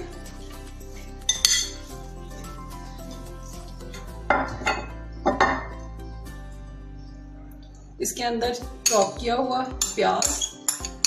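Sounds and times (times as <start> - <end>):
background music: 0.0 - 11.0
metal spoon clinking on glass: 1.3 - 1.8, 8.8 - 9.2, 9.8 - 11.0.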